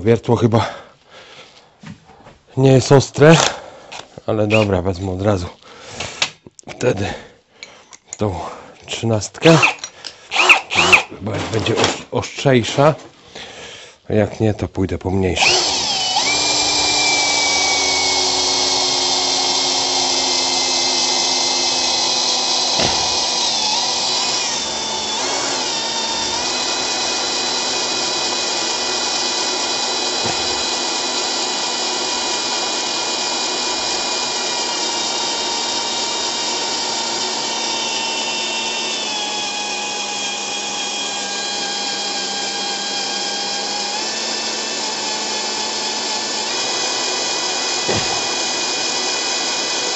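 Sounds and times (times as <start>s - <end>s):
drill boring into metal pipe: 4.5s - 4.7s, 9.4s - 11.1s, 15.4s - 49.9s.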